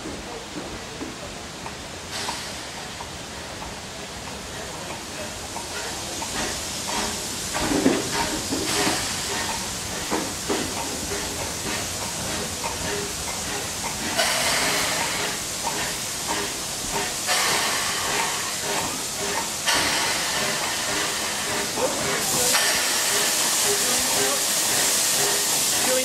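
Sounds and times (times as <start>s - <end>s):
steam locomotive running slowly: 0.0s - 26.0s
steam hissing: 0.3s - 26.0s
knocks and clanks: 5.7s - 22.9s.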